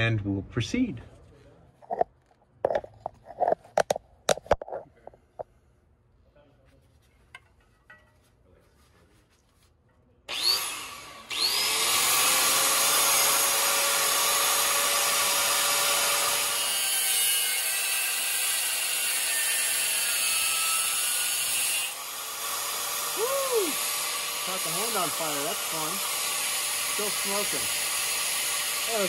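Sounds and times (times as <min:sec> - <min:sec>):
grinder spinning up whine: 0:10.3 - 0:15.7, 0:22.8 - 0:29.0
angle grinder cutting steel: 0:10.3 - 0:29.0.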